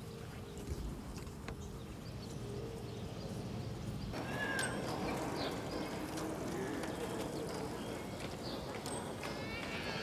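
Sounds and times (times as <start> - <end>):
clicks of skating strides: 4.1 - 10.0.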